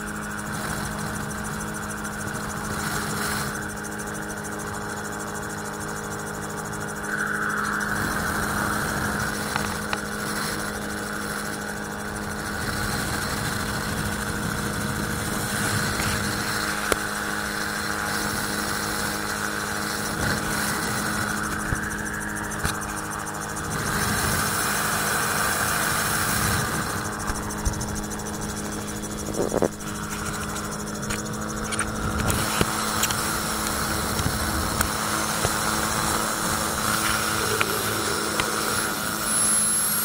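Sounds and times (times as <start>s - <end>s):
aircraft engine and propeller drone: 0.0s - 40.0s
wind rush: 6.8s - 11.3s, 17.8s - 39.7s.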